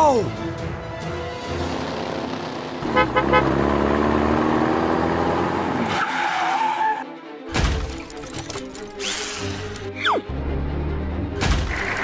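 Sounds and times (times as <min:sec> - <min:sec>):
truck horn double beep: 0:02.8 - 0:03.6.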